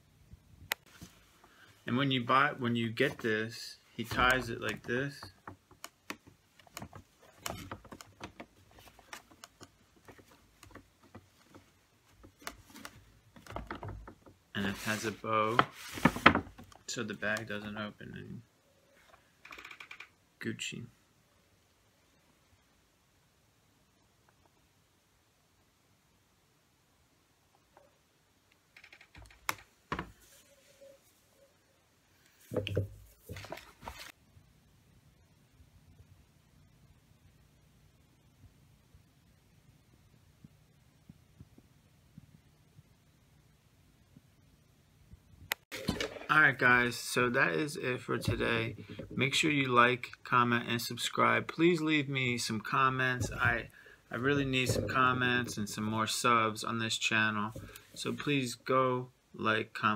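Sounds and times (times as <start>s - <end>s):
paper bag rustling: 33.1s - 34.1s.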